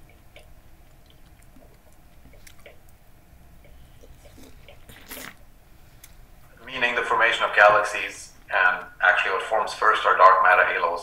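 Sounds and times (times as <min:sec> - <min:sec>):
person chewing: 0:00.0 - 0:03.0, 0:03.6 - 0:06.2
small mouth clicks: 0:00.0 - 0:03.0, 0:03.6 - 0:05.4.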